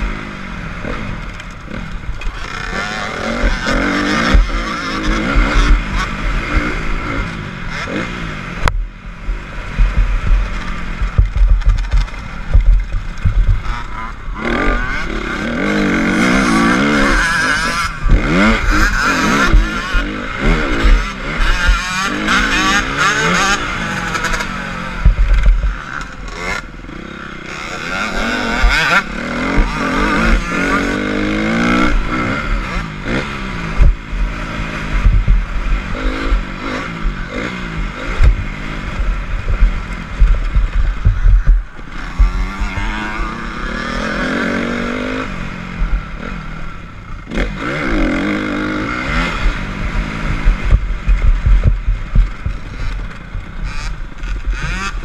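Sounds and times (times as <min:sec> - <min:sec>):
dirt bike engine revving: 0:00.0 - 0:55.0
wind buffeting microphone: 0:33.4 - 0:43.4.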